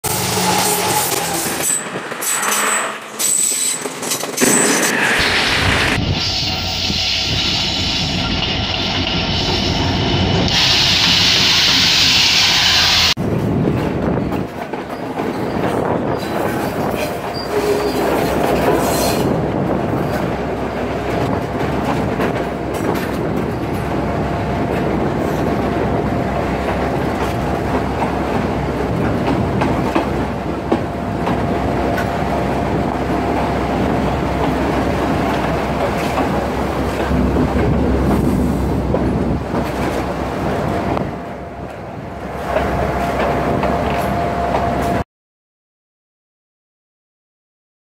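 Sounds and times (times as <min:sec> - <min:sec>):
diesel locomotive running: 0:00.0 - 0:45.0
loud hiss: 0:04.5 - 0:13.2
wheels clattering on rails: 0:13.4 - 0:24.0.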